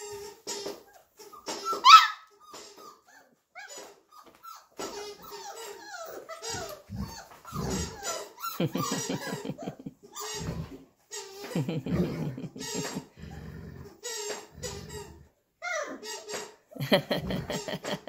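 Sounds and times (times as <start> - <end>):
puppies whining and squeaking: 0.0 - 9.2
puppy yelp: 0.9 - 8.6
puppies growling: 4.8 - 11.0, 11.6 - 15.9, 16.8 - 18.0.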